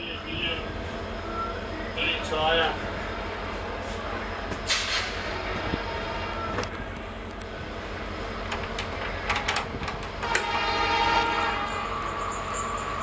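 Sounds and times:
diesel locomotive engine rumbling: 0.0 - 13.0
multi-tone train horn: 10.2 - 13.0.

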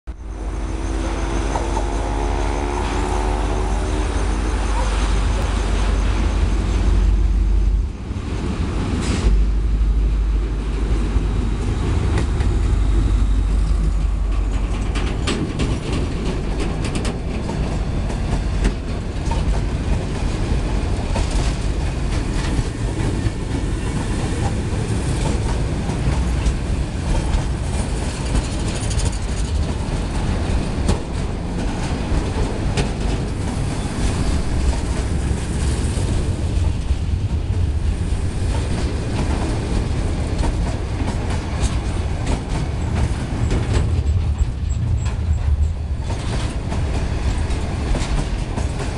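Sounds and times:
locomotive engine rumble: 0.1 - 48.9
train rolling roar: 0.1 - 48.9
wheels clacking over rail joints: 10.4 - 48.9.

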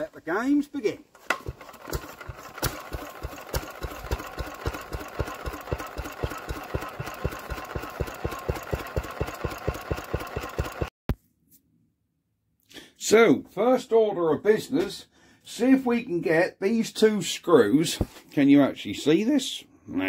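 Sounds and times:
single-cylinder engine running: 1.2 - 10.9.

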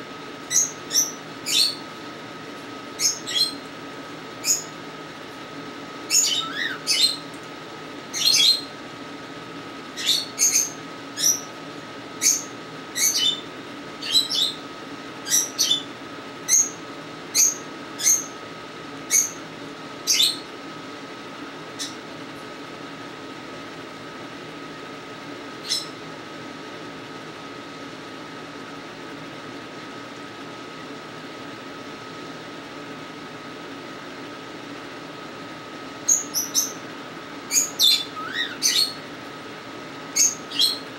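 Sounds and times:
cockatiel chirping: 0.5 - 1.8, 3.0 - 3.6, 4.4 - 4.7, 6.1 - 7.3, 8.2 - 8.7, 10.0 - 11.5, 12.2 - 13.4, 14.0 - 14.6, 15.3 - 15.9, 25.7 - 25.9, 37.5 - 39.0, 40.2 - 40.8.

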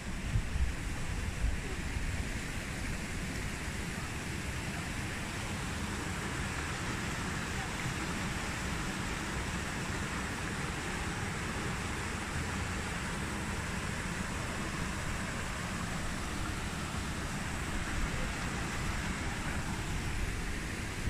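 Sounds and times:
wind rumble on microphone: 0.0 - 3.2
stream rushing over boulders: 0.0 - 21.0.

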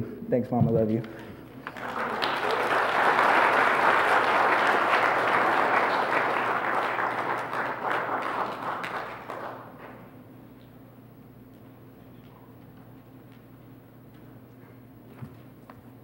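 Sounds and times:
congregation applauding: 1.5 - 10.1.

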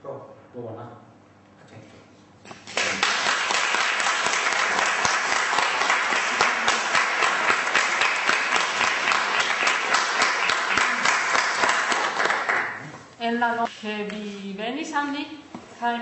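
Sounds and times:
audience clapping: 2.6 - 12.8.

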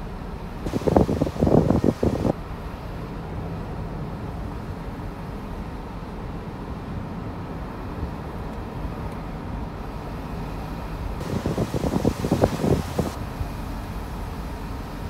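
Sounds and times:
car driving slowly: 0.0 - 15.0
wind buffeting microphone: 0.6 - 2.4, 11.2 - 13.2.

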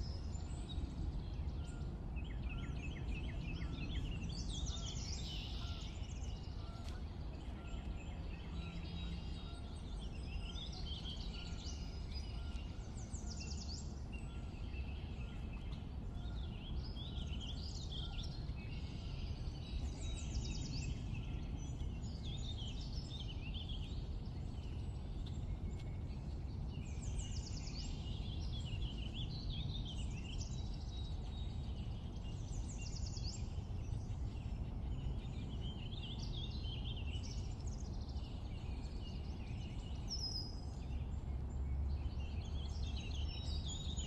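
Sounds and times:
low background rumble: 0.0 - 44.0
songbirds singing: 0.0 - 44.0.

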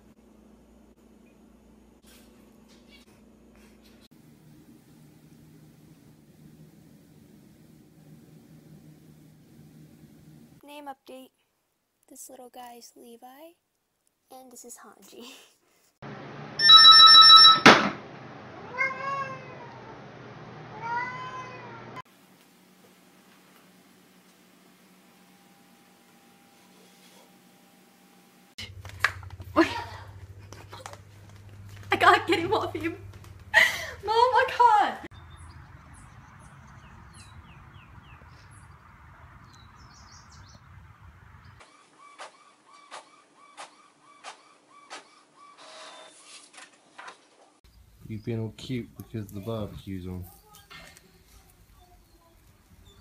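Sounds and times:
low outdoor rumble: 0.0 - 10.6, 27.6 - 41.6, 47.7 - 53.0
telephone ringing: 16.6 - 17.8
cat meowing: 18.6 - 19.9, 20.7 - 22.0
birds chirping: 35.1 - 46.2, 47.7 - 53.0.

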